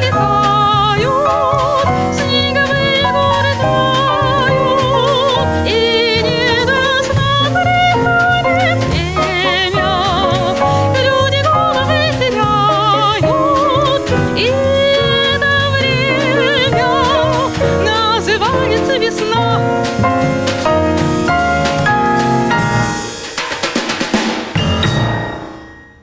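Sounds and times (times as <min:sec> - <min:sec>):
woman singing with vibrato: 0:00.0 - 0:19.8
double bass: 0:00.0 - 0:23.1
drum kit: 0:00.0 - 0:26.0
grand piano: 0:00.0 - 0:26.0.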